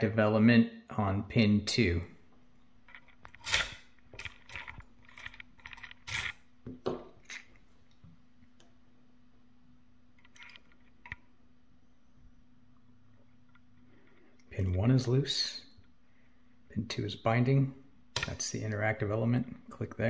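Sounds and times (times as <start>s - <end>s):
key scraping out of lock: 2.9s - 6.4s.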